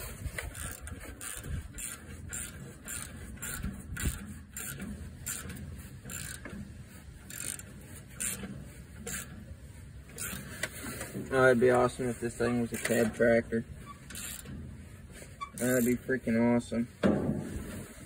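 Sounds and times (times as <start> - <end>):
socket ratchet clicking: 0.5 - 6.5, 7.3 - 8.5.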